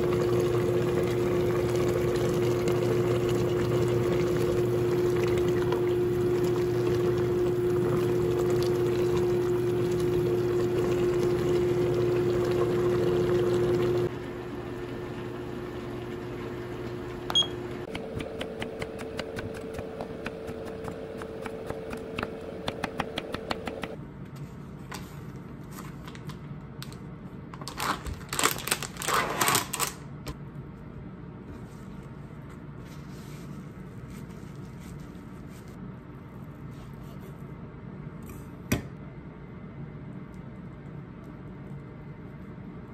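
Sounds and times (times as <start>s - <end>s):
cooktop hum: 0.0s - 42.9s
paper towel rustling: 31.5s - 35.8s.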